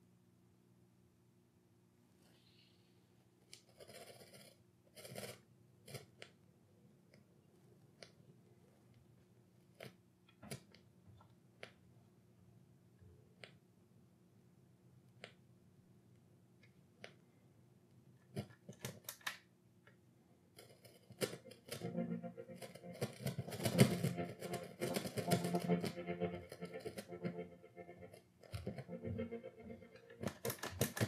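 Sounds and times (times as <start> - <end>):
crackly broken-up music: 21.2 - 31.0.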